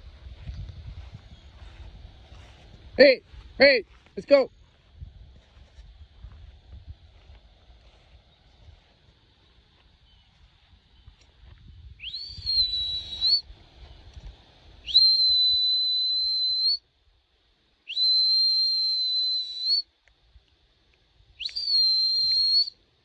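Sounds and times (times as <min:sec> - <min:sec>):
low wind rumble: 0:00.0 - 0:17.6
high-pitched whistle blasts: 0:12.0 - 0:13.5, 0:14.8 - 0:16.8, 0:17.9 - 0:19.9, 0:21.4 - 0:22.8.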